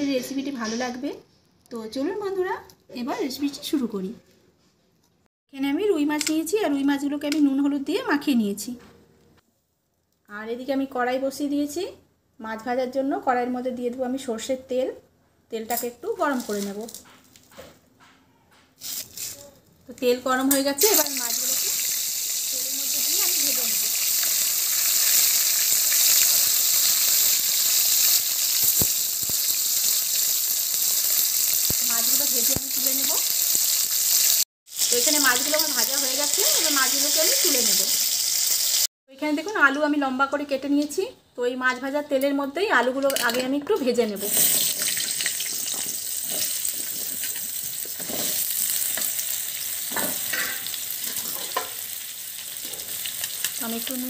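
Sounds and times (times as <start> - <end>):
fish sizzling in hot oil: 20.6 - 38.9, 44.2 - 54.0.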